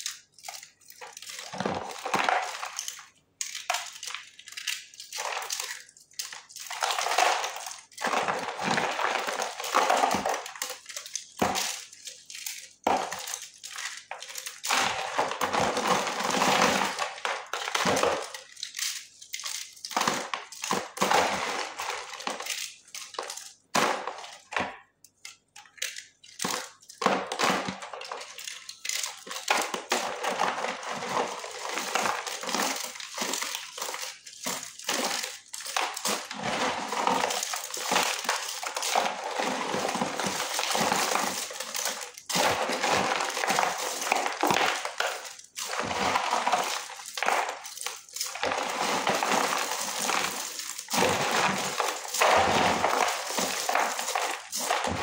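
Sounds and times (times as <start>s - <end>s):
hands crunching dry clay: 0.0s - 55.0s
pieces dropping onto pile: 0.0s - 55.0s.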